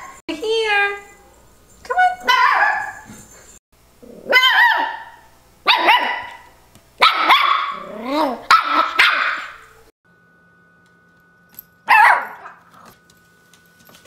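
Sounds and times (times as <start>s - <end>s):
puppy whiny barking: 2.2s - 3.1s, 4.2s - 9.7s, 11.9s - 12.7s.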